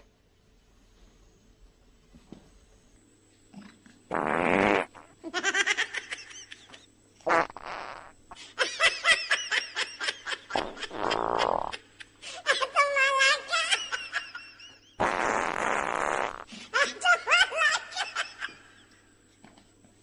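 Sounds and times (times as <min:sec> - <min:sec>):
farting sounds: 0:03.6 - 0:05.2, 0:07.2 - 0:08.2, 0:10.6 - 0:11.8, 0:15.0 - 0:16.5.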